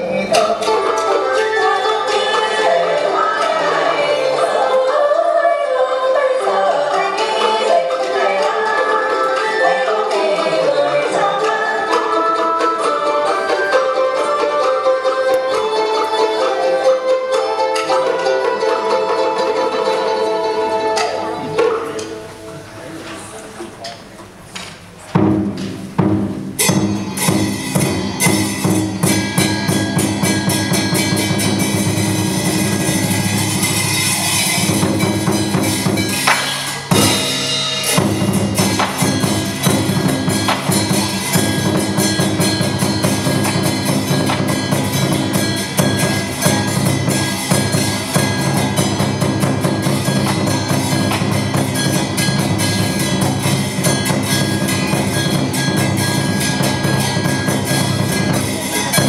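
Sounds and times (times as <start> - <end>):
held instrument notes: 0.0 - 24.4, 25.4 - 59.0
fast loud drumming and percussion: 25.1 - 59.0.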